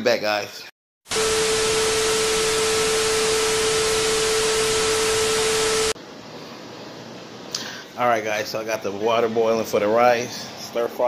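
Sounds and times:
steady tone: 1.1 - 6.0
tv static hiss: 1.1 - 6.0
room hum: 1.1 - 11.0.

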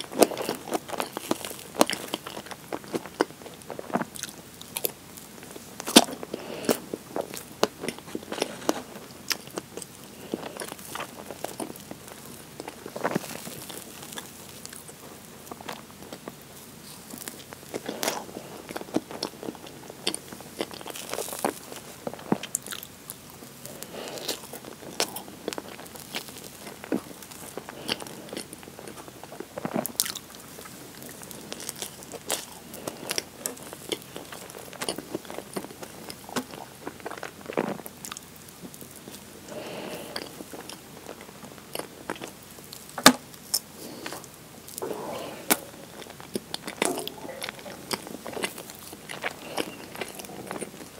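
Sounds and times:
chewing and wet mouth sounds: 0.0 - 50.9.

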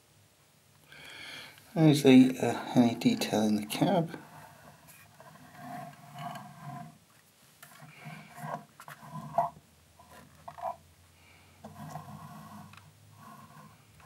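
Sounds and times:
plastic model clicks and scrapes: 11.6 - 13.8.

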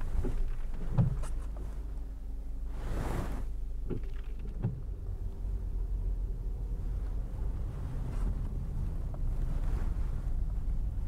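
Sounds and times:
dull thumps: 0.0 - 1.7
car engine and tyres rumbling: 0.0 - 11.0.

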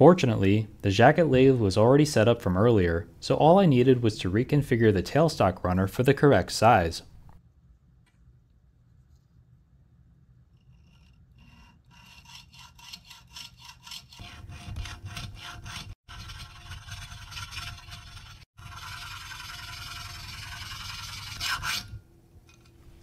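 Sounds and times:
metal burnisher rasping on pivot: 10.5 - 22.7.

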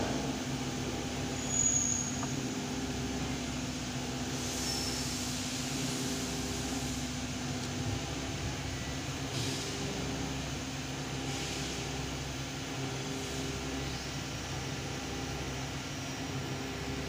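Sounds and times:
machinery humming: 0.0 - 17.0.

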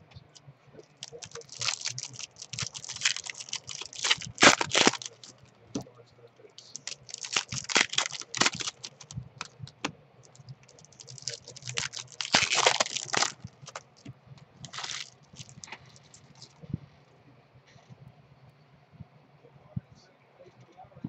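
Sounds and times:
plastic wrapper crinkling: 0.8 - 5.4, 6.6 - 16.6.

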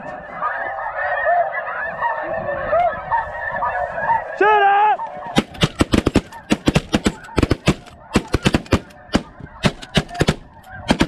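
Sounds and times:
geese calling: 0.0 - 11.0
shotgun blasts: 5.4 - 11.0.

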